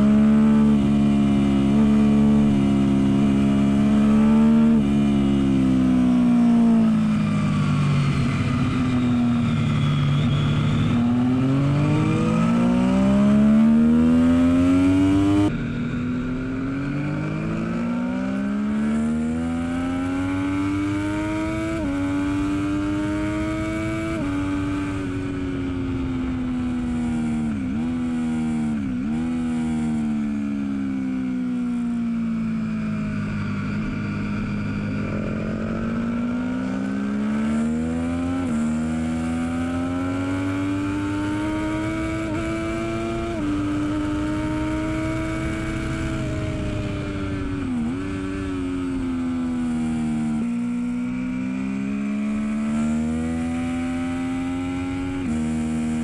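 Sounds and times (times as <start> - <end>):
motorcycle engine revving through gears: 0.0 - 56.0.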